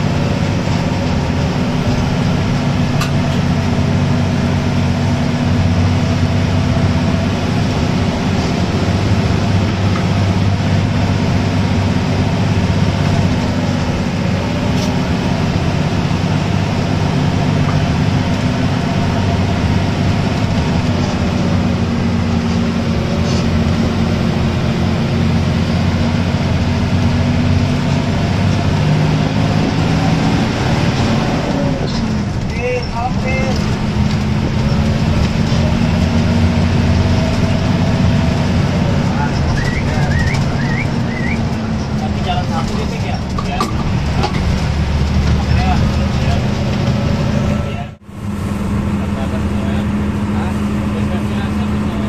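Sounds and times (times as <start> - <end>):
bus engine running: 0.0 - 52.0
road noise: 0.0 - 52.0.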